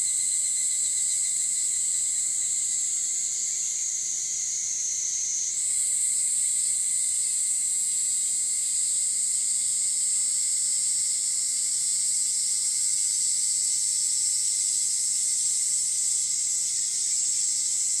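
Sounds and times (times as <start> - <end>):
cicadas and crickets chorus: 0.0 - 18.0.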